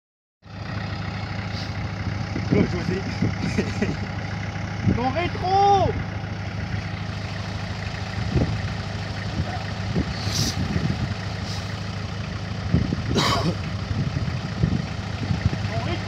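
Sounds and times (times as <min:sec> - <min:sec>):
engine running at low revs: 0:00.4 - 0:16.0
brief hisses: 0:10.1 - 0:10.6.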